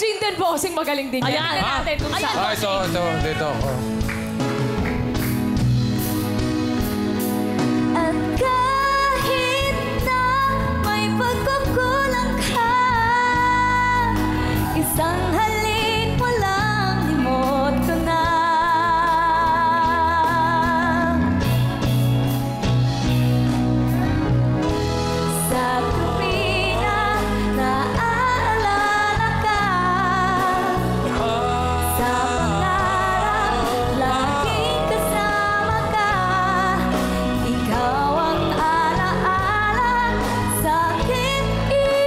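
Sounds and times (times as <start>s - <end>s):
backing track: 1.2s - 42.0s
woman singing a pop song: 7.8s - 21.4s, 25.2s - 42.0s.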